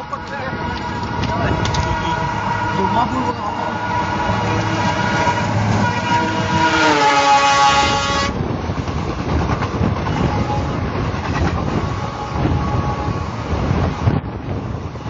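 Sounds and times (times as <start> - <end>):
diesel locomotive horn blast: 0.0 - 8.6, 9.6 - 15.0
train coaches rushing past: 0.0 - 15.0.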